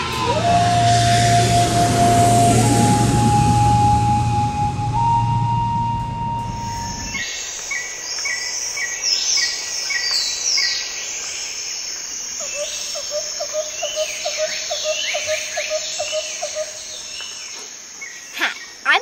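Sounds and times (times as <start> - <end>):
held music note: 0.0 - 7.2.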